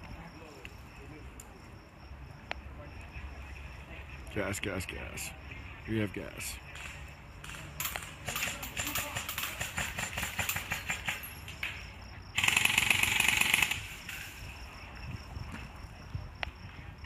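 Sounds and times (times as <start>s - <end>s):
airsoft guns firing: 6.8s - 11.3s, 12.4s - 14.1s
full-auto airsoft burst: 12.4s - 14.0s.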